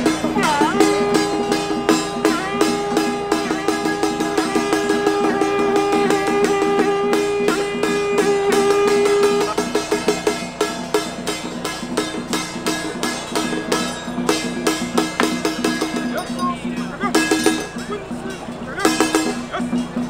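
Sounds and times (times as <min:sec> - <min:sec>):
horn blowing long note: 0:00.0 - 0:11.3
fast percussion beat: 0:00.0 - 0:20.0.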